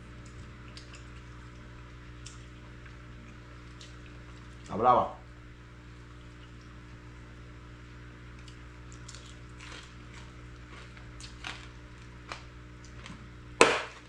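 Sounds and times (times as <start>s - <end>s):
steady low hum: 0.0s - 14.0s
man chewing food: 0.2s - 4.7s, 8.2s - 13.3s.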